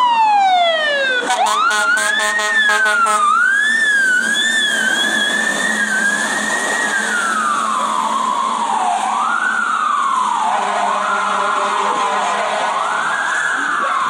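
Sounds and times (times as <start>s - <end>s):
fire truck siren wailing: 0.0s - 14.0s.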